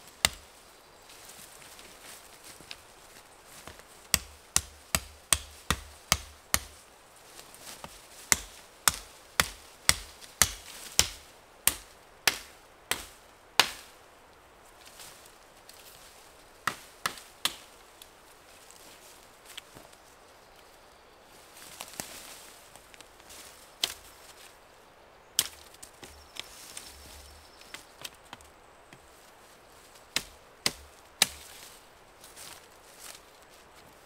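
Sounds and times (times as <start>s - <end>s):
blade chopping sapling: 0.2s - 0.5s, 3.7s - 6.8s, 8.3s - 13.9s, 16.6s - 17.7s, 25.4s - 26.4s, 30.2s - 31.5s.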